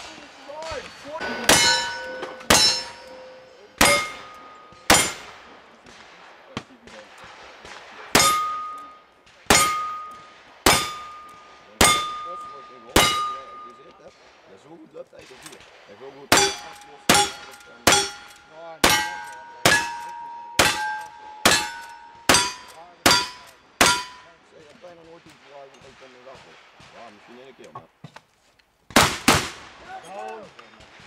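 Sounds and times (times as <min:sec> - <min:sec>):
steel target ringing: 0:00.6 - 0:05.5, 0:08.1 - 0:14.0, 0:16.3 - 0:24.5.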